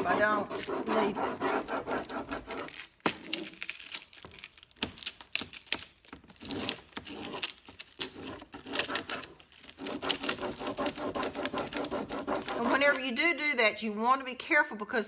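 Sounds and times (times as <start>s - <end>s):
scratchy rubbing on surface: 0.0s - 3.5s, 6.4s - 13.2s.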